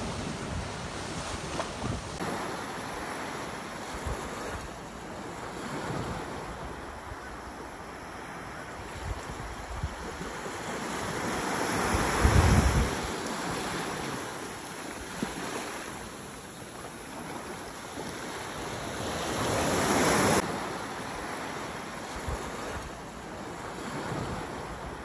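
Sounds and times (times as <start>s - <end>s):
small waves breaking on shore: 0.0s - 25.0s.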